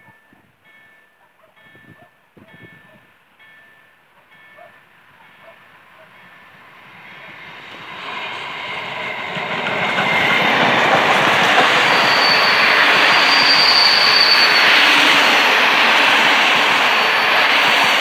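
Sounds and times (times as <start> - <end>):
steam train wheels rumbling: 4.9 - 18.0
high wheel squeal: 10.0 - 18.0.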